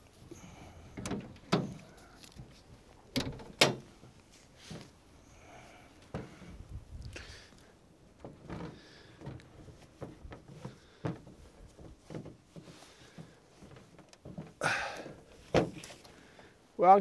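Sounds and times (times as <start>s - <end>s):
soft rustling of shoes and bedding: 3.8s - 17.0s.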